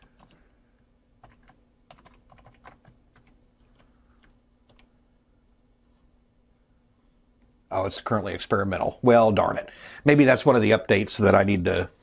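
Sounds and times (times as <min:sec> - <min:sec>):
typing on computer keyboard: 0:00.0 - 0:00.4, 0:01.2 - 0:04.9
faint steady hum: 0:00.0 - 0:12.0.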